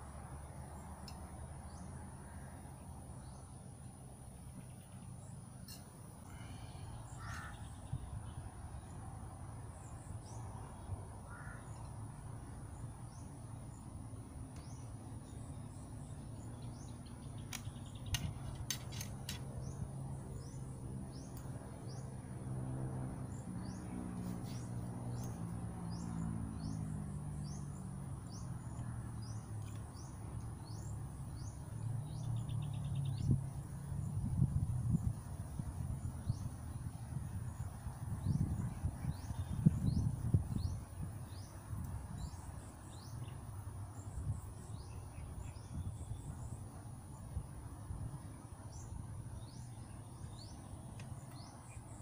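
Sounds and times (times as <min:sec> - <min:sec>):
bird calls: 0:04.6 - 0:08.4.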